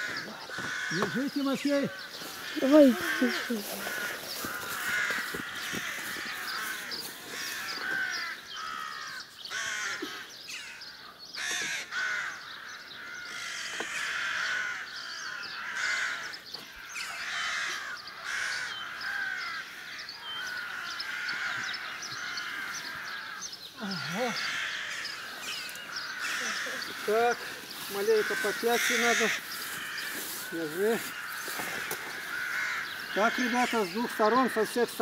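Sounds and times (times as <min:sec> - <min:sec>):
branches rustling and cracking: 0:00.0 - 0:10.2, 0:24.2 - 0:35.0
crows cawing: 0:00.0 - 0:35.0.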